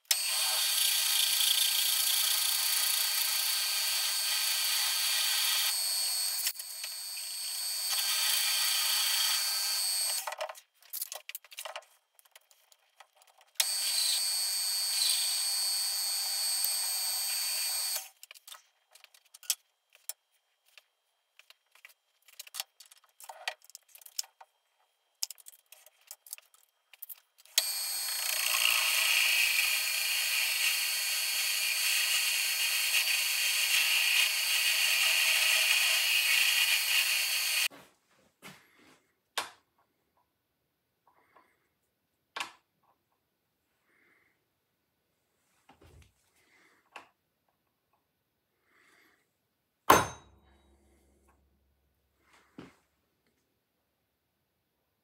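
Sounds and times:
drill boring into steel: 0.1s - 10.2s, 13.6s - 18.2s, 27.6s - 37.7s
metal lathe running: 27.6s - 37.7s.

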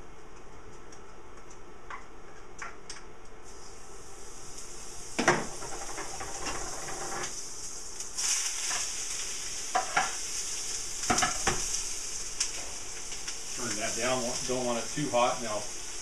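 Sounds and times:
peppers sizzling in frying pan: 3.4s - 16.0s.

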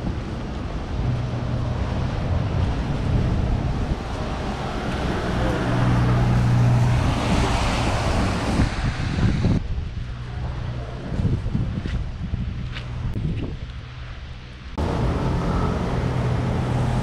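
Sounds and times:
low engine hum: 0.0s - 17.0s
tyres hissing on wet road: 0.1s - 9.6s, 14.0s - 17.0s.

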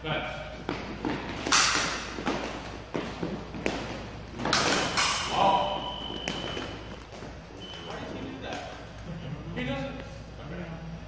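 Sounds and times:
fencing footwork stamps: 0.5s - 7.6s
fencing blades clacking: 1.0s - 7.4s.

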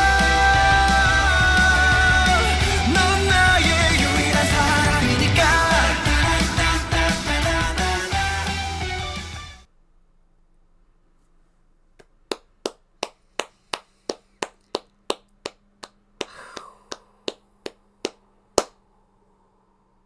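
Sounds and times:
person clapping hands: 12.0s - 18.8s.

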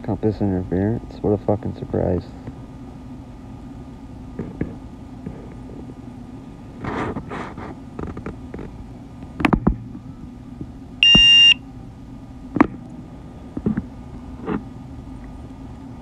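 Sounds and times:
electronic warning beep: 11.0s - 11.6s.

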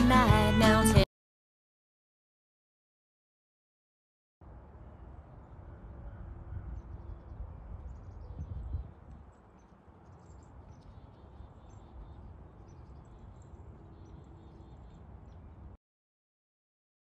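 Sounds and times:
wind rumbling on microphone: 4.4s - 15.8s.

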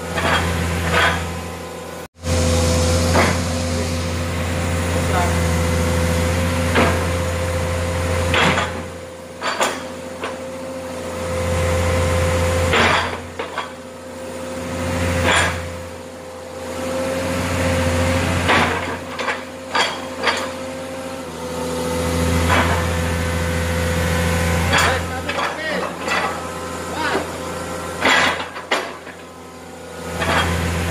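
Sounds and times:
excavator diesel engine whining: 0.0s - 30.9s
metallic clanks from grapple: 24.7s - 26.5s, 28.0s - 29.3s, 30.1s - 30.7s.

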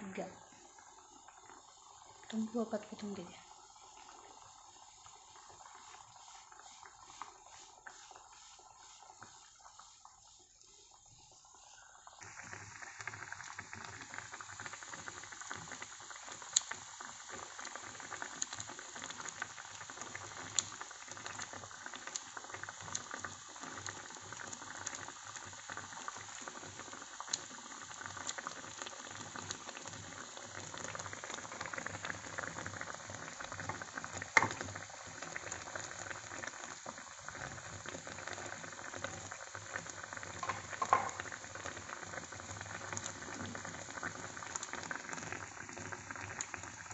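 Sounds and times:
sauce bubbling in a pan: 0.1s - 46.9s.

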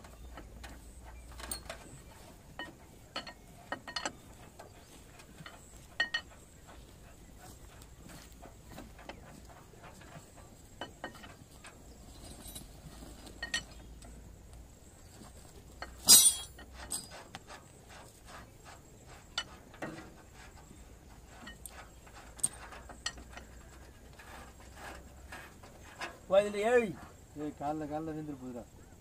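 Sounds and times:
loud metal clank: 16.0s - 17.1s.

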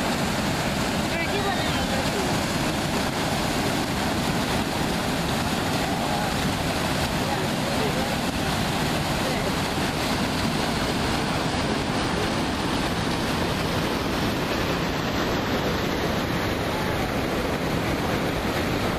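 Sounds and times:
waterfall rushing into pool: 0.0s - 18.9s.

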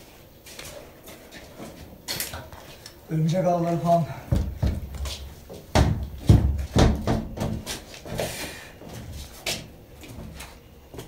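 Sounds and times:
wooden door knocking and clattering: 4.3s - 5.0s, 5.7s - 7.6s.

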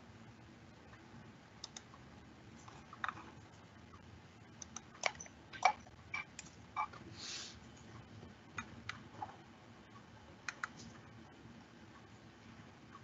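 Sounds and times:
keyboard and mouse clicking: 1.6s - 1.9s, 4.6s - 6.5s, 10.4s - 10.9s.

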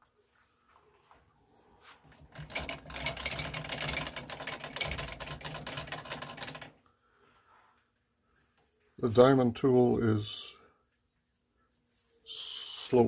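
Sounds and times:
metal lathe clattering and humming: 2.1s - 6.8s.

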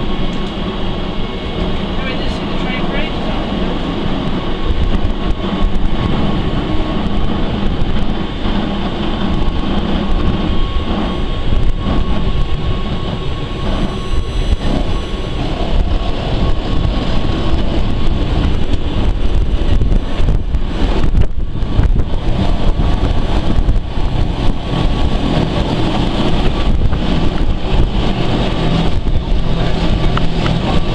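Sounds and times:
rumble of train wheels: 0.0s - 30.9s
steady whine: 0.0s - 30.9s.

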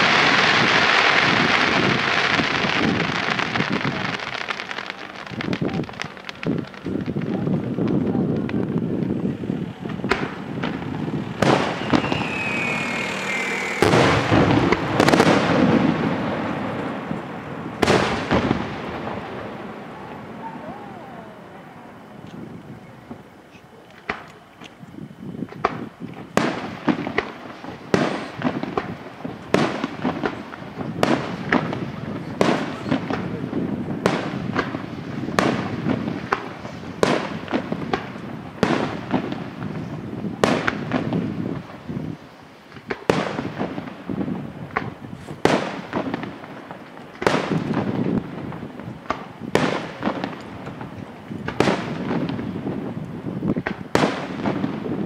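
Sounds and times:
firework shells bursting: 0.0s - 55.0s
low rumble of echoes: 4.6s - 23.4s.

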